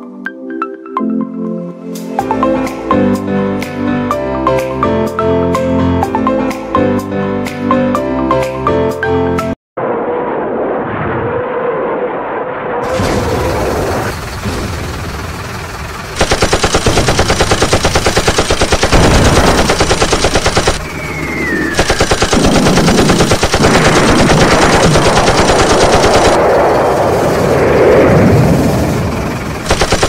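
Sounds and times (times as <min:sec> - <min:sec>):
machine-gun bursts: 0:16.2 - 0:20.9, 0:21.7 - 0:26.4, 0:29.6 - 0:30.0
short falling whistle: 0:20.8 - 0:21.8.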